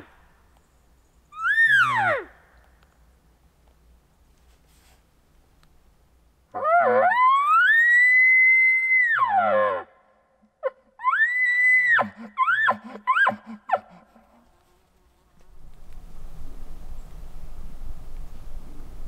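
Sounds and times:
elk bugle call: 11.0 - 14.5.

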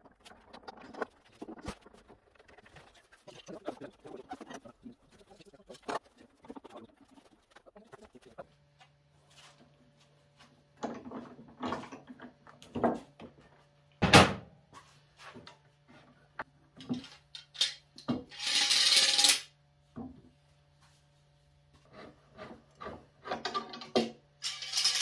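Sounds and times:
metal and wood clattering on workbench: 10.8 - 14.4, 16.8 - 19.4, 22.4 - 25.0.

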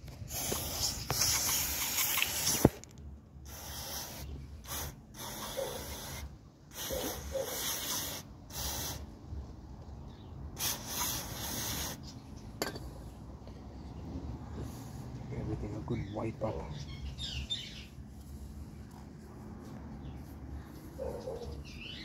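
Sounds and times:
aerosol spray hissing: 0.3 - 2.8, 3.5 - 9.1, 10.6 - 12.0.

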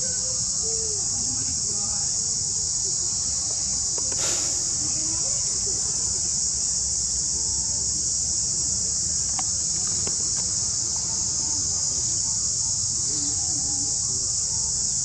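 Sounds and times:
insect chorus drone: 0.0 - 15.0
faint ticks: 9.2 - 10.5.

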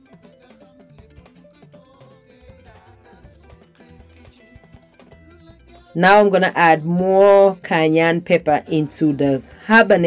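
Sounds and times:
melody over steady drum beat: 0.0 - 6.3.

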